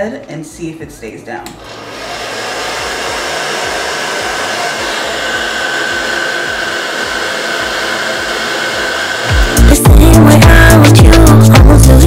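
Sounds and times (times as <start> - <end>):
hair dryer running: 1.4 - 12.0.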